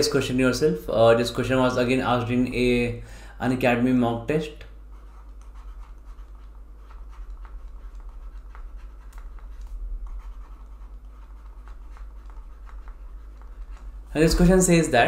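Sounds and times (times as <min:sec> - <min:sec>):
steady low hum: 0:00.0 - 0:15.0
stylus tapping and scratching tablet: 0:04.7 - 0:15.0.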